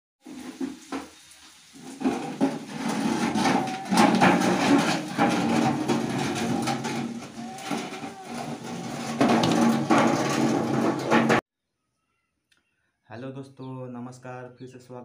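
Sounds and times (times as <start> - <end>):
metal tins scraping on concrete: 0.2 - 11.4
metal tins knocking: 2.0 - 11.4.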